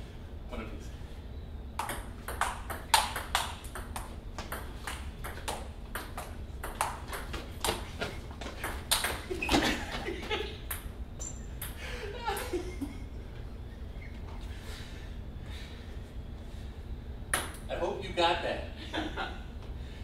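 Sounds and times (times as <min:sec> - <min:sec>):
ping pong ball clicking: 0:01.8 - 0:07.8, 0:08.6 - 0:09.2.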